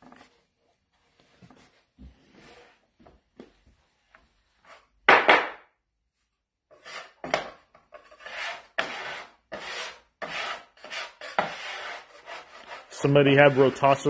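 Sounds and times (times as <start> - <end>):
metal scraper scraping wooden board: 6.7 - 14.0.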